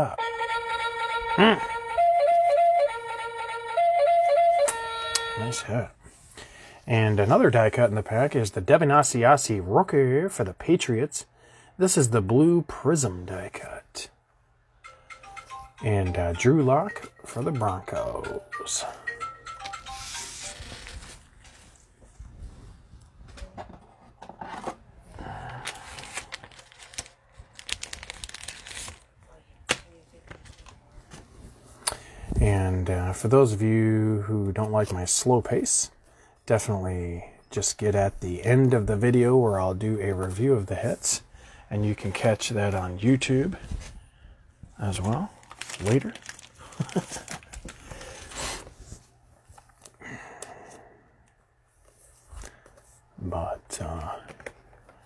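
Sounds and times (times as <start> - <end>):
foil wrapper crinkling: 20.1 - 21.8, 25.6 - 29.1, 45.0 - 48.4.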